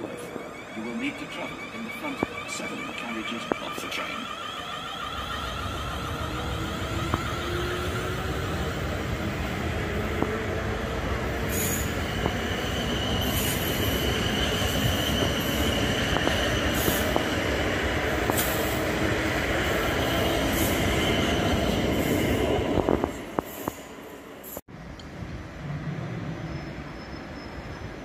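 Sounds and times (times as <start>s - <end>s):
high wheel squeal: 0.0s - 10.0s, 10.8s - 23.0s
train wheels rumbling on rails: 0.0s - 28.0s.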